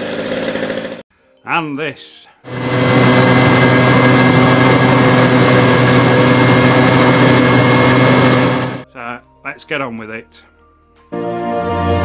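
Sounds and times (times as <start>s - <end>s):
jet engine running: 2.5s - 8.8s.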